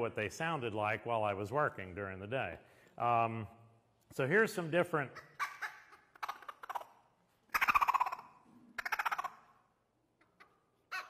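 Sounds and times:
squirrel call chattering bursts: 7.5s - 9.4s.

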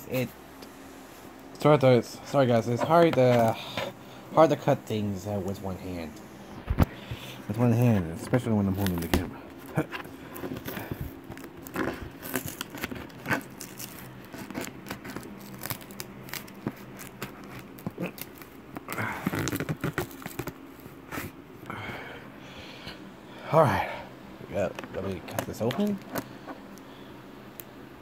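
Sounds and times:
packing tape tearing: 8.7s - 21.3s.

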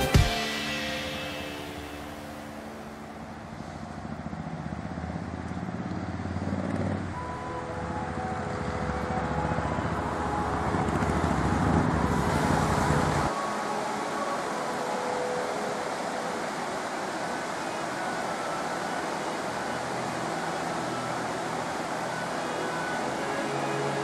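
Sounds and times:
water rushing over weir: 0.0s - 24.0s
cars passing on street: 2.5s - 13.4s.

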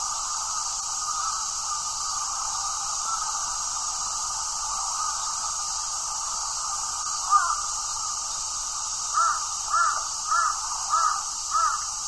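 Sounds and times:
steady high hiss: 0.0s - 12.0s
crow cawing: 7.2s - 7.7s, 9.1s - 11.9s.

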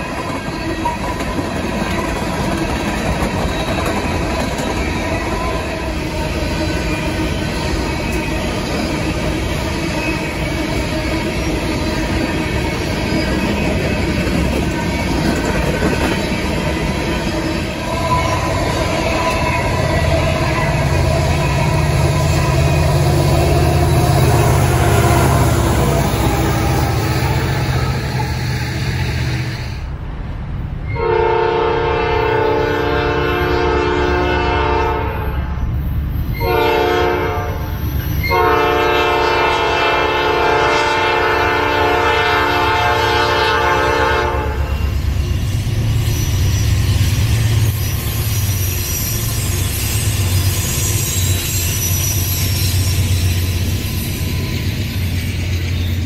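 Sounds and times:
freight cars rumbling past: 0.0s - 30.9s
locomotive air horn blasts: 30.9s - 35.6s, 36.4s - 37.6s, 38.2s - 44.9s.

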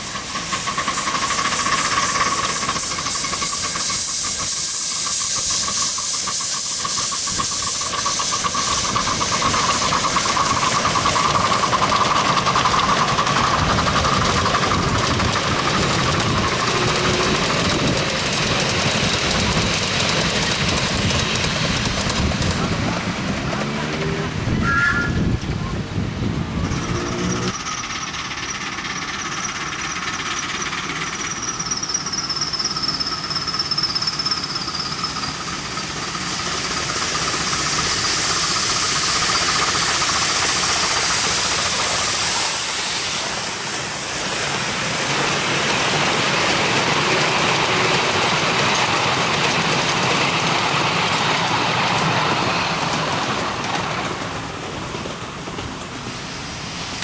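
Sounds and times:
miniature steam train passing: 0.0s - 57.0s.

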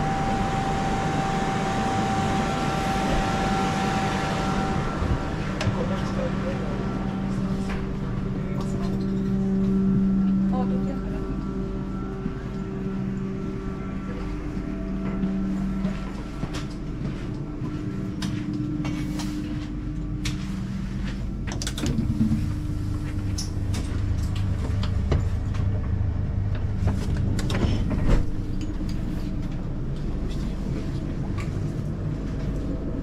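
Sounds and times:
electric train humming: 0.0s - 33.0s.

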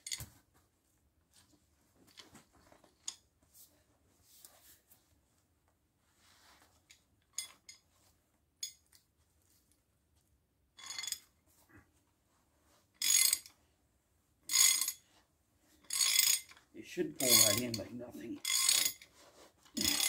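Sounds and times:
wrench clinking on metal: 7.4s - 7.8s, 10.8s - 11.3s, 13.0s - 13.5s, 14.5s - 15.0s, 15.9s - 16.6s, 17.2s - 19.0s, 19.8s - 20.0s
metallic rasps: 15.9s - 16.5s, 17.2s - 19.0s, 19.8s - 20.0s.

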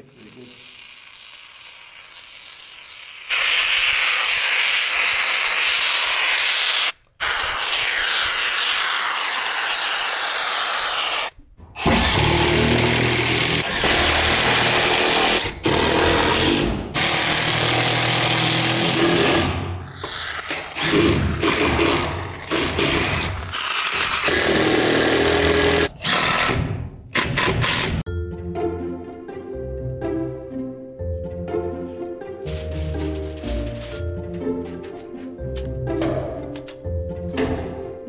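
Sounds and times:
power driver driving screws: 11.8s - 28.0s.

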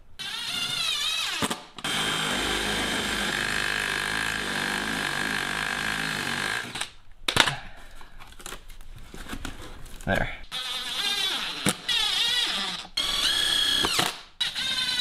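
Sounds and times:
cordless driver whining: 0.2s - 6.9s, 10.5s - 15.0s.

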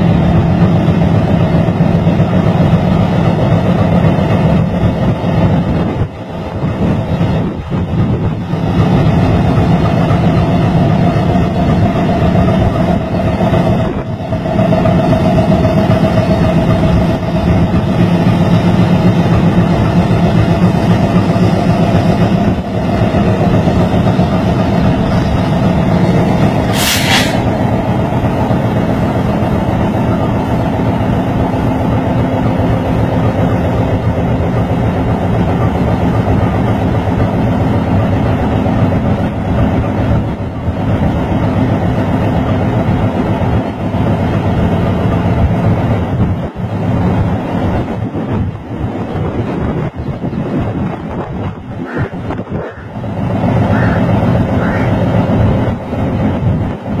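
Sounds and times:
diesel locomotive engine idling: 0.0s - 57.0s
short hiss: 26.7s - 27.6s.

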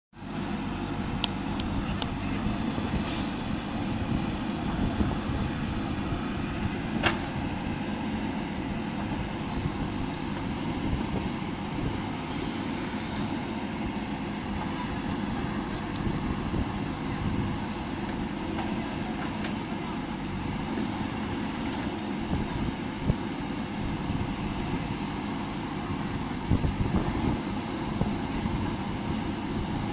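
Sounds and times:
diesel engine under load: 0.2s - 29.9s.

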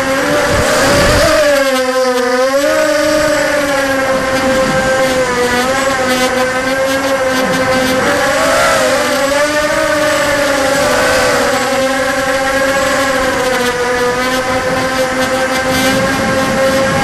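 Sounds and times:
drone motors whining: 0.0s - 17.0s
wind rushing: 7.2s - 14.8s.

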